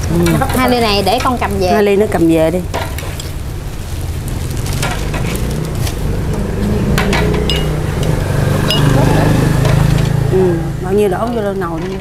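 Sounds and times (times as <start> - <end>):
cups and pot clinking: 6.9 - 10.1
ringing clink: 8.7 - 9.0.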